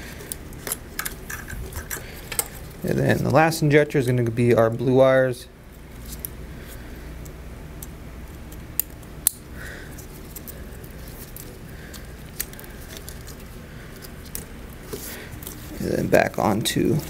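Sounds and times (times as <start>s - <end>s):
low steady hum: 0.0s - 17.0s
wiring handling rustle: 0.0s - 17.0s.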